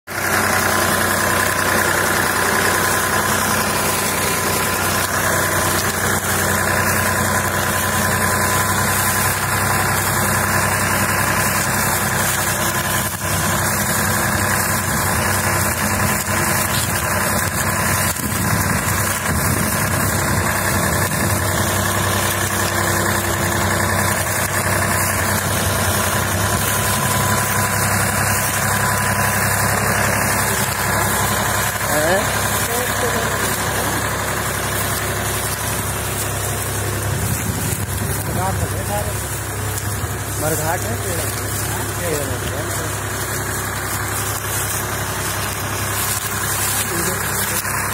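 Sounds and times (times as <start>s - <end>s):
tractor diesel engine running: 0.0s - 47.9s.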